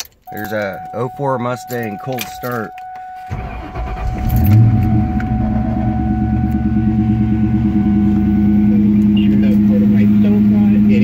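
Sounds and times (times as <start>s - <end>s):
car engine starting and idling: 0.0s - 11.0s.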